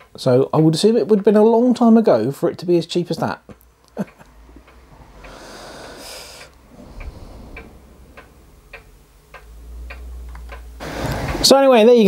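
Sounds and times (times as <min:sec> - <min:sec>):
faint regular ticking: 0:00.0 - 0:01.6, 0:02.4 - 0:12.0
low steady hum: 0:03.3 - 0:10.8
short hiss: 0:05.3 - 0:08.8.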